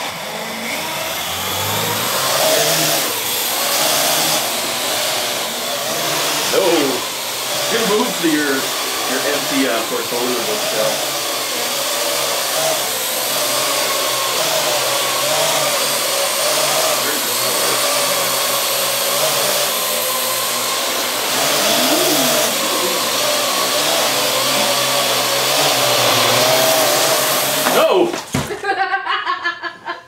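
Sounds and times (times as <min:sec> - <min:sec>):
drone rotors whirring: 0:00.0 - 0:28.3.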